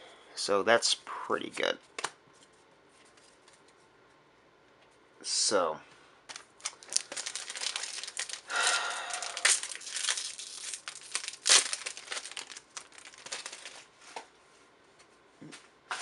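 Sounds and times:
wrapper crinkling: 0:06.3 - 0:13.9
wrapper ripping: 0:06.3 - 0:13.9
cards rustling: 0:06.3 - 0:14.2.

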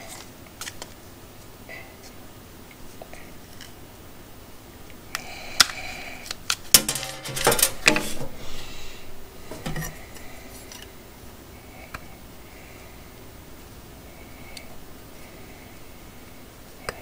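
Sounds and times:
metal rings clinking: 0:06.7 - 0:08.6.

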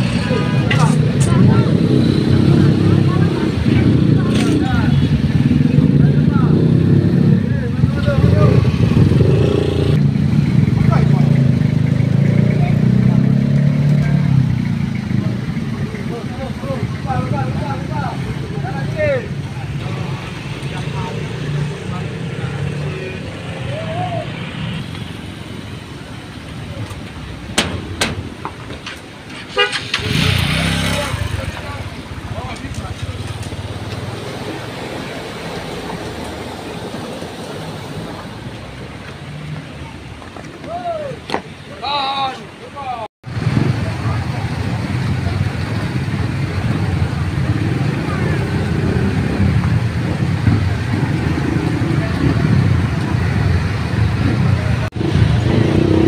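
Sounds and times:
road traffic: 0:00.0 - 0:56.0
steel plates clanking: 0:27.5 - 0:30.1
motorcycles and scooters riding past: 0:29.8 - 0:32.5.

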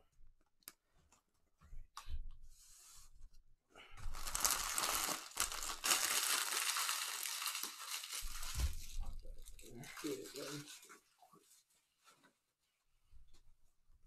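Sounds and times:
plastic wrapper crinkling and tearing: 0:04.0 - 0:11.6.

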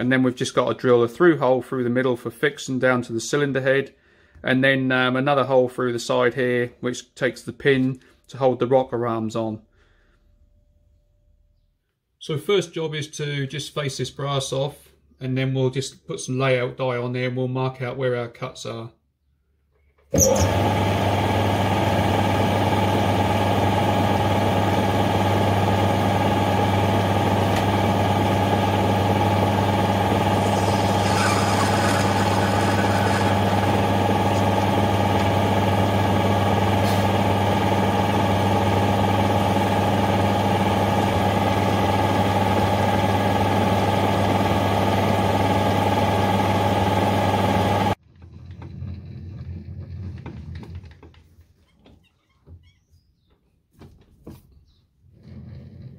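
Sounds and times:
metal lathe humming: 0:20.2 - 0:48.0
lathe tool cutting hiss: 0:30.1 - 0:34.8.

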